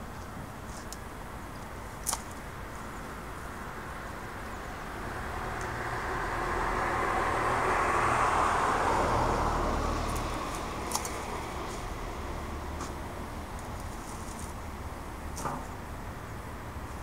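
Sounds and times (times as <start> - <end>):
car passing on wet street: 4.3 - 13.9
loppers snipping branch: 10.1 - 11.3.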